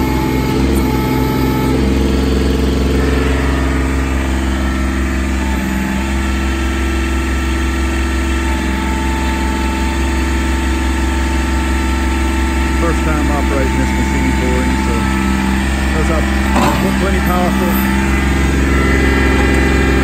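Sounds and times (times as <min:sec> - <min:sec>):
diesel tractor engine running: 0:00.0 - 0:20.0.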